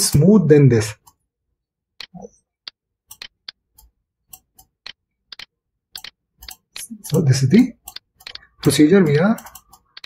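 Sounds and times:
computer mouse button clicking: 0:03.1 - 0:07.3.

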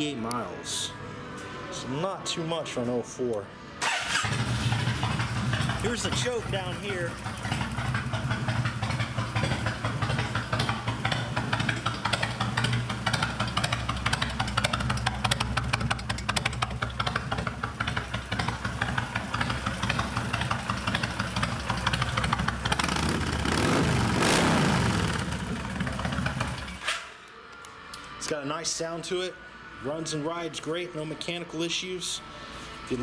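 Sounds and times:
motorcycle engine idling and revving: 0:03.9 - 0:26.9.

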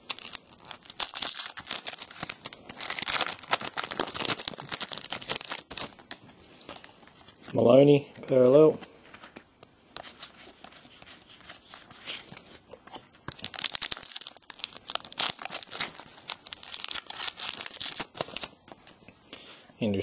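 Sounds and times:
foil wrapper crinkling and tearing: 0:00.0 - 0:07.4, 0:13.0 - 0:19.0.

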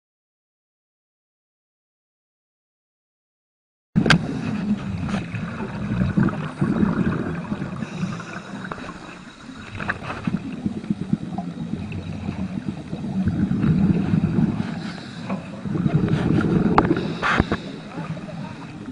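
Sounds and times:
underwater rumble of moving water: 0:04.0 - 0:18.9.

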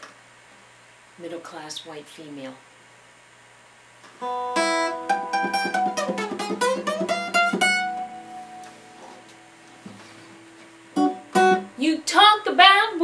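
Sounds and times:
acoustic guitar playing: 0:04.2 - 0:13.0.

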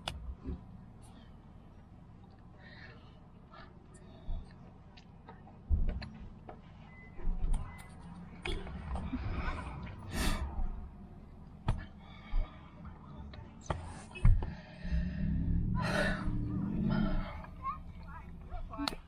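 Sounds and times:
breathy exhales and sighs: 0:13.8 - 0:17.6.

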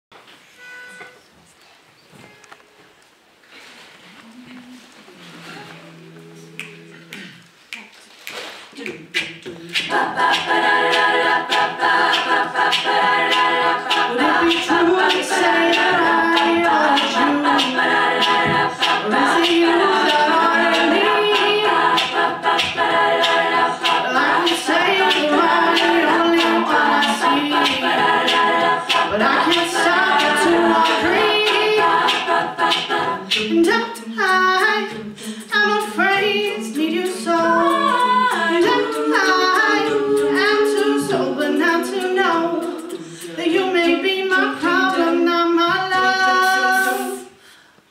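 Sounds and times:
percussive vocal clicks: 0:05.9 - 0:41.2, 0:41.9 - 0:44.0
women singing a cappella: 0:08.8 - 0:47.5.

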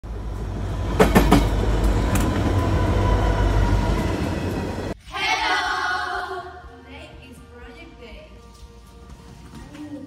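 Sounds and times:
train clacks: 0:00.0 - 0:05.0
train rumbling: 0:00.0 - 0:05.0
music: 0:05.0 - 0:10.0.

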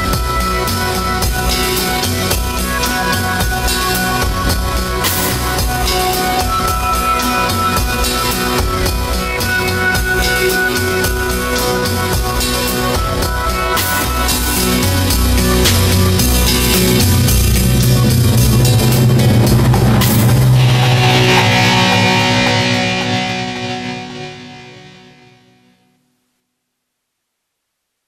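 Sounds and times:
steady pitched tones: 0:00.0 - 0:25.8
drum beat: 0:12.1 - 0:24.3.

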